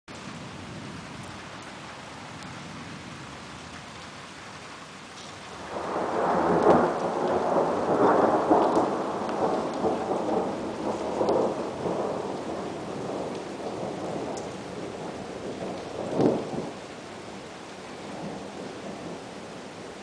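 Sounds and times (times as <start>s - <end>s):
steady rain hiss: 0.1s - 20.0s
thunder rolling: 5.5s - 16.8s.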